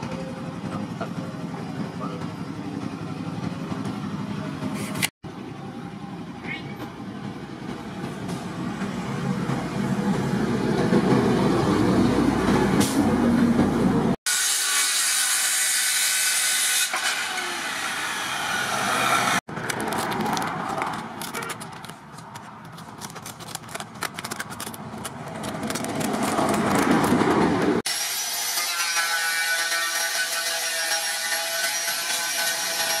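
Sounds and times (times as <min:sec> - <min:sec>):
scissors cutting sandpaper: 0:19.6 - 0:27.2.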